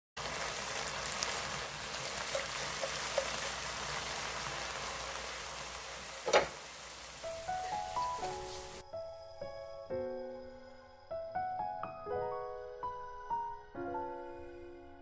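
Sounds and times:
faint crackles: 0:00.2 - 0:08.8
leaves sizzling in a pan: 0:00.2 - 0:08.8.

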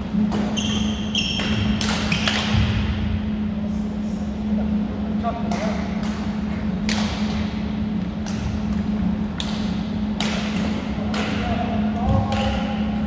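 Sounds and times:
steady low hum: 0:00.0 - 0:13.0
rackets smacking shuttlecocks: 0:00.2 - 0:02.8, 0:08.2 - 0:11.5.

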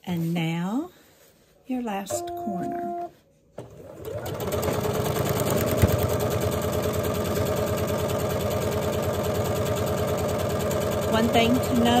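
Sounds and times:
sewing machine running: 0:03.6 - 0:12.0.

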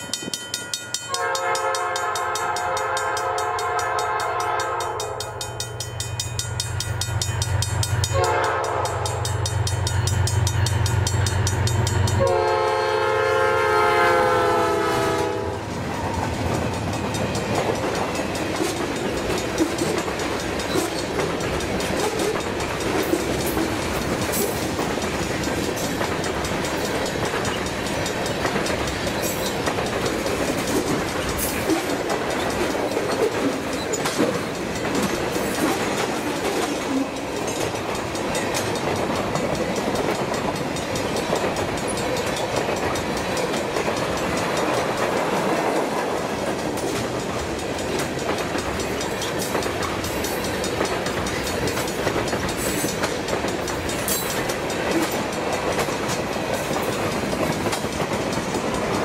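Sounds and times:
train wheels clicking over rail joints: 0:00.0 - 0:59.0
locomotive horn blasts: 0:01.1 - 0:05.4, 0:08.1 - 0:09.2, 0:12.2 - 0:15.7.

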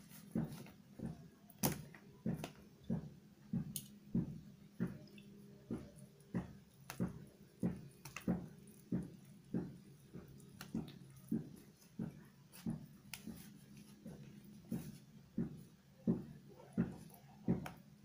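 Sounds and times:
wet smacking chewing: 0:05.9 - 0:12.2.

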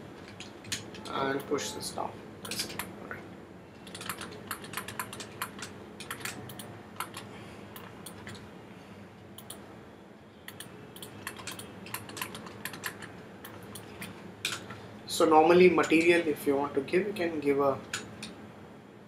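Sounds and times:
computer keyboard keystrokes: 0:00.2 - 0:01.6, 0:02.4 - 0:02.9, 0:03.8 - 0:08.5, 0:10.5 - 0:14.8.

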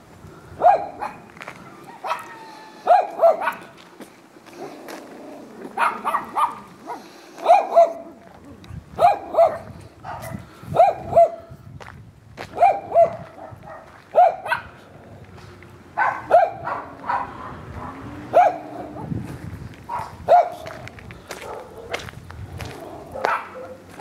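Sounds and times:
dog barking: 0:00.6 - 0:01.3, 0:01.9 - 0:03.8, 0:05.8 - 0:08.2, 0:09.0 - 0:11.5, 0:12.5 - 0:14.8, 0:16.0 - 0:19.2, 0:19.9 - 0:22.1, 0:23.0 - 0:24.0.

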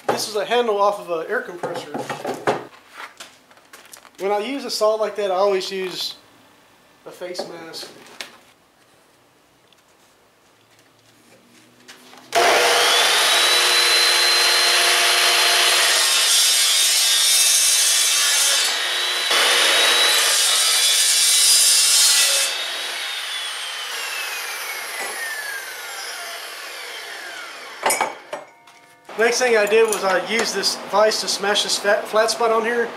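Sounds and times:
chop saw motor whine: 0:12.3 - 0:15.9, 0:22.6 - 0:28.3
saw grinding through metal: 0:12.4 - 0:28.3.

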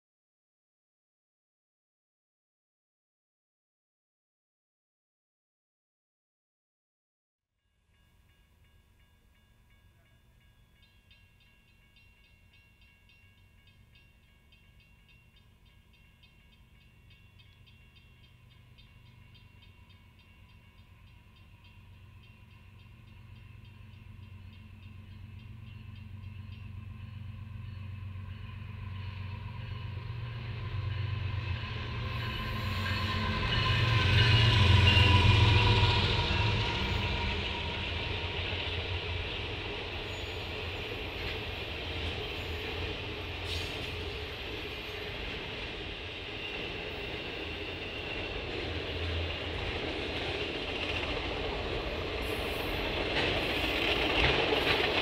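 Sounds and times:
diesel locomotive engine rumble: 0:15.9 - 0:55.0
train cars rumbling and clattering: 0:17.1 - 0:55.0.

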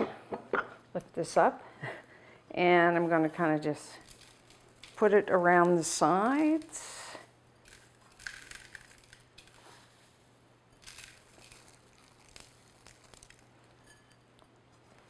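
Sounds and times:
coconut flakes rustling and crackling: 0:03.0 - 0:15.0.

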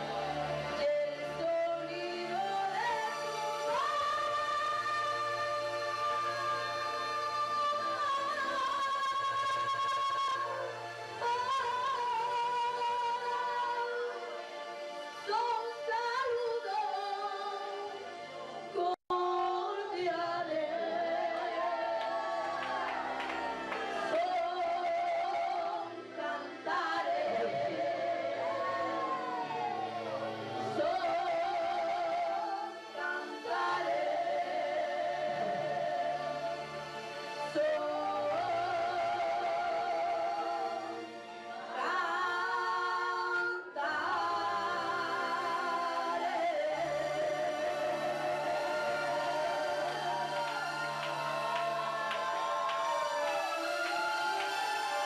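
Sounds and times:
woman singing into microphone: 0:00.7 - 0:14.3, 0:15.2 - 0:17.9, 0:18.7 - 0:23.0, 0:24.0 - 0:29.6, 0:30.6 - 0:36.5.

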